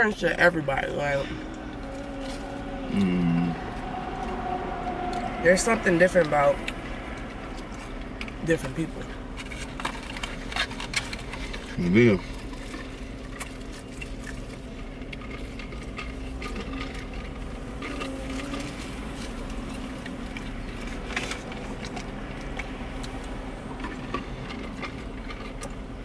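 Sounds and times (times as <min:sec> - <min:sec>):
steady low hum: 0:00.0 - 0:26.0
person chewing: 0:01.4 - 0:05.3, 0:06.6 - 0:08.4, 0:09.3 - 0:25.9
clicks and rustles of dipping food: 0:06.3 - 0:26.0.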